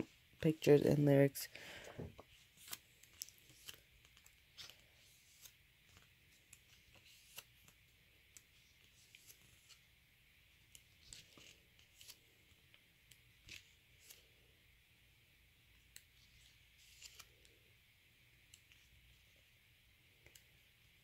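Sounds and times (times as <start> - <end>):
pages turning: 2.2 - 9.9, 10.6 - 14.4, 15.9 - 17.6.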